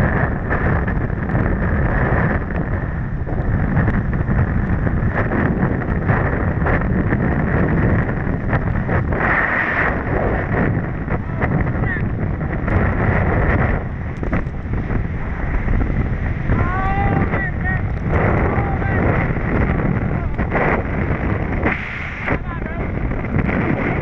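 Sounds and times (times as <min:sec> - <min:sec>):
wind buffeting microphone: 0:00.0 - 0:24.0
water rushing and splashing: 0:14.6 - 0:23.1.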